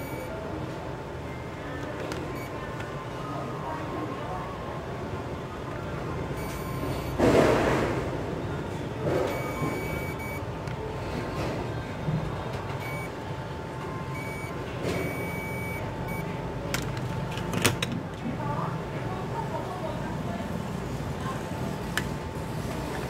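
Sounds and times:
multimeter beeping: 0.0s - 0.3s, 6.4s - 7.2s, 9.3s - 10.5s, 12.8s - 13.2s, 14.1s - 16.4s.

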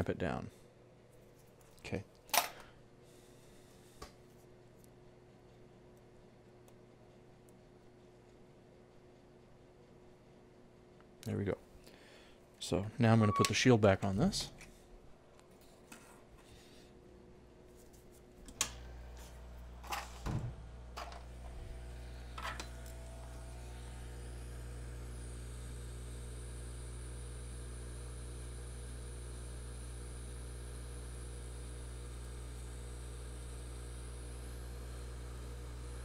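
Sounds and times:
low hum: 18.5s - 36.0s.

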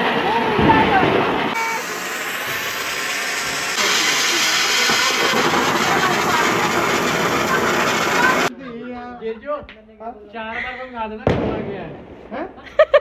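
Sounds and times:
firework fountain hissing: 0.0s - 8.5s.

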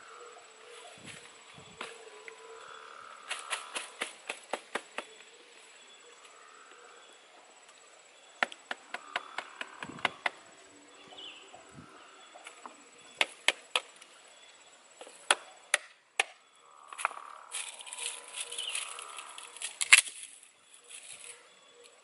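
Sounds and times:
rustling: 17.5s - 21.4s.

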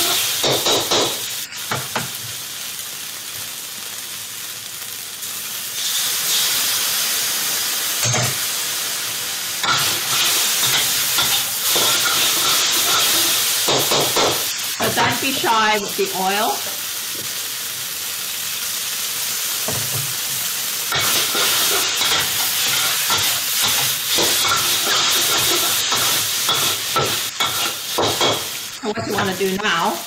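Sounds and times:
noodles sizzling in a wok: 0.0s - 30.0s
metal spatula scraping a wok: 20.9s - 29.4s.

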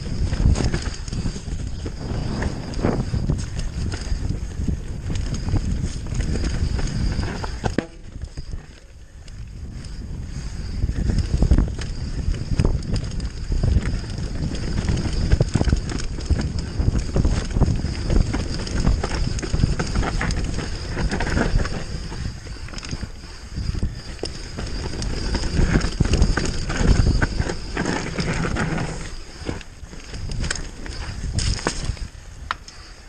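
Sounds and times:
tyres rumbling over dirt: 0.0s - 8.6s, 23.8s - 32.0s
bike knocking and rattling: 0.0s - 32.8s
wind buffeting microphone: 0.0s - 33.0s.

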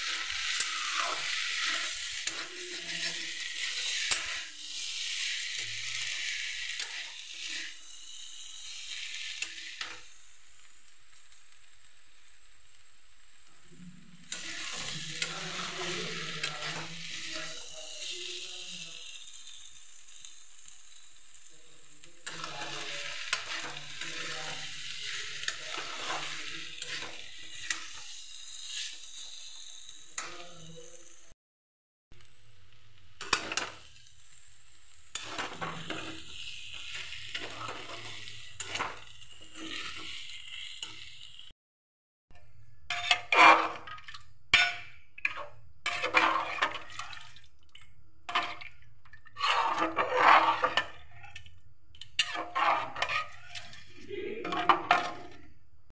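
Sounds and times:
metal spatula scraping pan: 0.0s - 10.2s, 14.2s - 20.7s, 22.2s - 30.5s, 33.2s - 34.3s, 35.1s - 41.4s, 42.9s - 55.6s
food sizzling in a metal pan: 0.0s - 31.4s, 32.1s - 41.6s, 42.4s - 55.6s.

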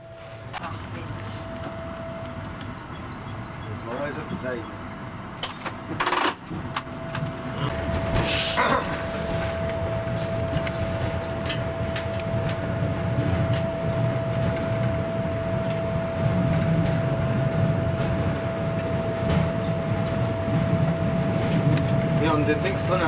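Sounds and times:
constant whining tone: 0.0s - 23.0s
railcar engine and wheels drone: 0.0s - 23.0s
track clicks: 0.5s - 8.2s.

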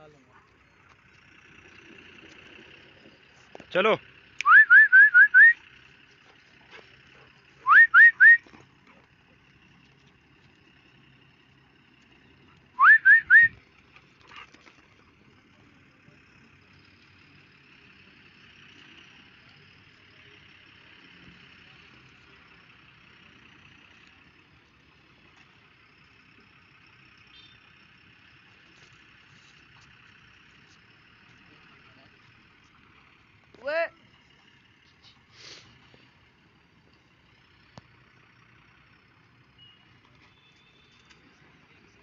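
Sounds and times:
short rising whistles: 4.4s - 5.7s, 7.6s - 8.5s, 12.7s - 13.6s.

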